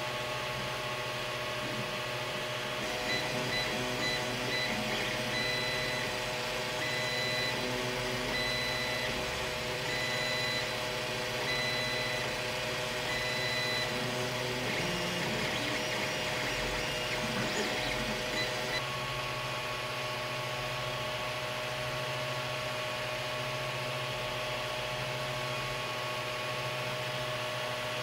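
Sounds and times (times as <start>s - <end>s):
stepper motor whine: 0.0s - 19.0s
cooling fans whirring: 0.0s - 28.0s.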